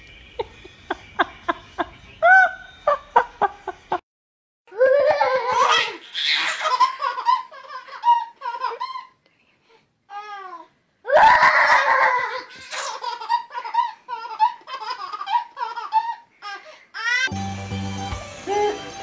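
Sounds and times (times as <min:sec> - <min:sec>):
baby belly-laughing: 0:04.7 - 0:09.2, 0:11.2 - 0:17.3.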